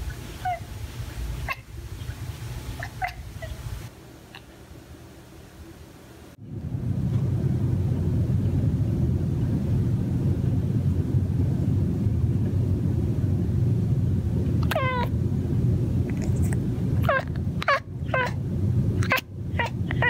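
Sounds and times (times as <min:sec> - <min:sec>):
cat chirping mews: 0:02.8 - 0:03.6, 0:14.7 - 0:15.1, 0:17.0 - 0:18.4
low rumble: 0:06.3 - 0:20.0.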